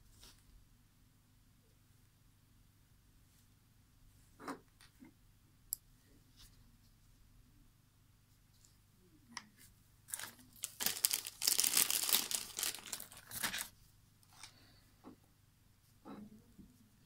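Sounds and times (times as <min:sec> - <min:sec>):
material crinkling and tearing: 0:10.1 - 0:14.5.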